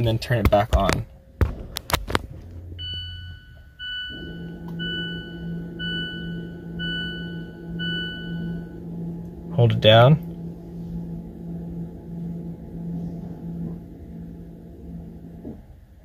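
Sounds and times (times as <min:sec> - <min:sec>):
low hum: 0:00.0 - 0:16.0
dashboard warning chime beeping: 0:02.6 - 0:15.4.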